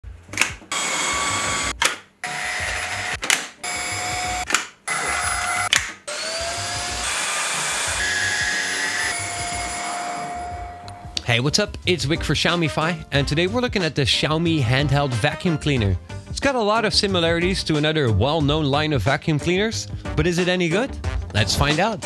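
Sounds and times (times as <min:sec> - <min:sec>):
handheld vacuum motor whining: 0:00.7 - 0:11.0.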